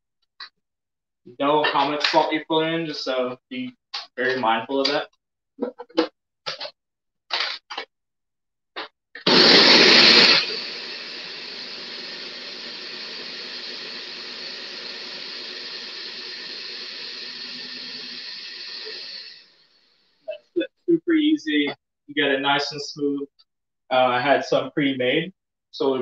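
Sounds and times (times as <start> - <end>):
blender whirring: 9.2 - 19.7.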